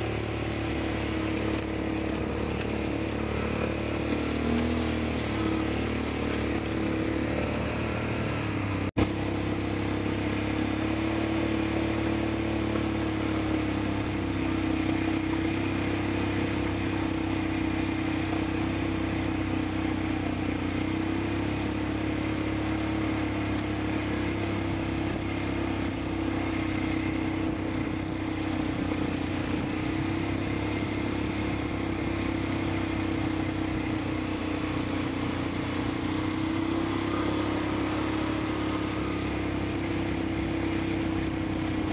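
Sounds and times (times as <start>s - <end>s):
engine droning steadily: 0.0s - 41.9s.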